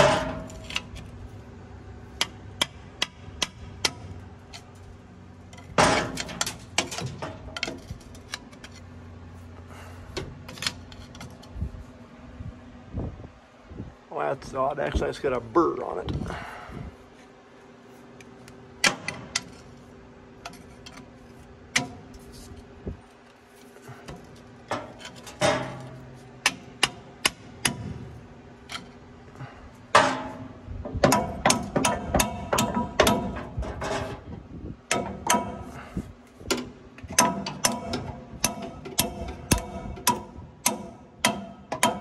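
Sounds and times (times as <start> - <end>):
hand tools knocking steel parts: 29.9 - 34.2, 36.5 - 42.0
sharp metal taps: 31.0 - 33.4, 36.5 - 42.0.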